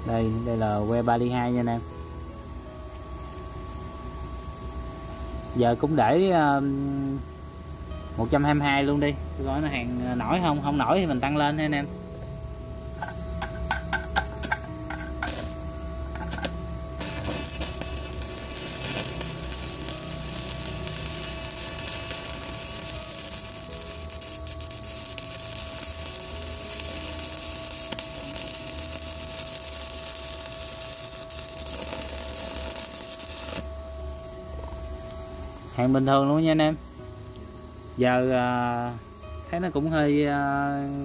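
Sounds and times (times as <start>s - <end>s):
arc striking clicks: 12.9s - 15.5s, 16.1s - 33.7s
welding arc crackling: 13.6s - 33.6s.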